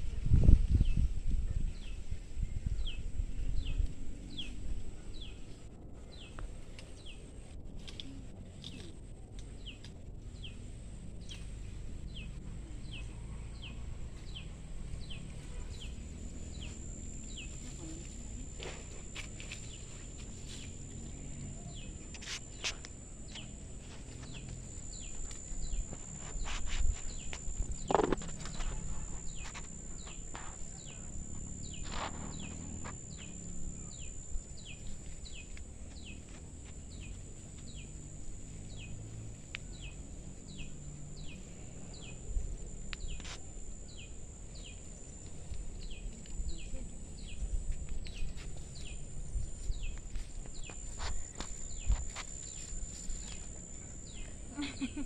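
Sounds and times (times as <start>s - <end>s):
rustling of plants and stalks: 0.0s - 55.0s
high insect drone: 13.6s - 55.0s
bird chirping: 19.4s - 36.3s.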